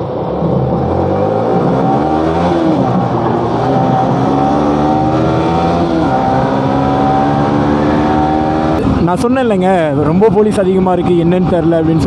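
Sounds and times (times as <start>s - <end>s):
motorcycle engine accelerating: 0.0s - 9.0s.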